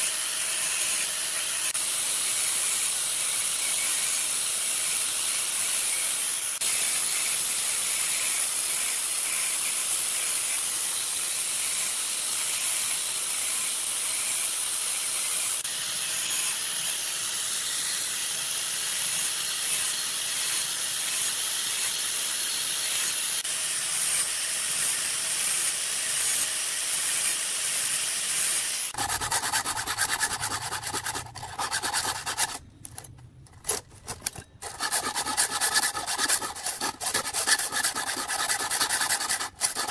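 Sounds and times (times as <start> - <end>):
file rasping on chain teeth: 0.0 - 27.4, 28.3 - 39.9
angle grinder grinding: 0.0 - 39.9.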